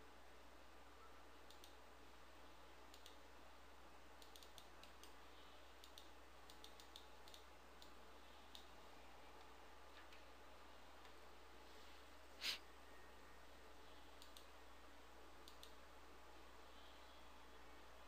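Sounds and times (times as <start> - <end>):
faint low hum: 0.0 - 18.0
computer mouse clicks: 1.4 - 1.8, 2.9 - 3.2, 4.2 - 5.2, 5.8 - 8.8, 14.1 - 14.6, 15.4 - 15.8.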